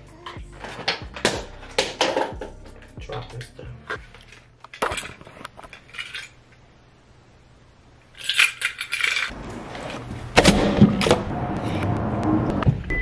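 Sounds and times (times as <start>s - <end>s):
metallic jingling and clinking: 4.0s - 6.4s, 8.2s - 9.3s.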